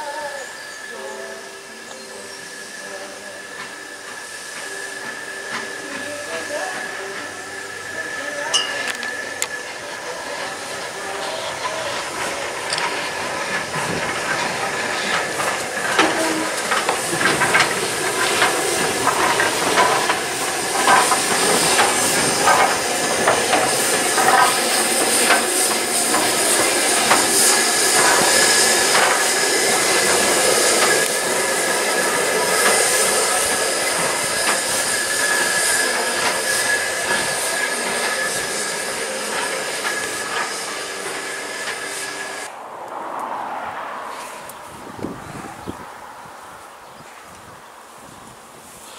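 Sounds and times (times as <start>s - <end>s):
steam hissing: 0.0s - 42.5s, 46.5s - 48.9s
metallic clanks of wheels on rails: 8.4s - 42.5s.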